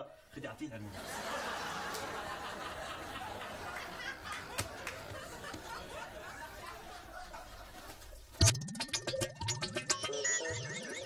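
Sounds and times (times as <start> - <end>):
audience laughter: 0.9 - 8.4.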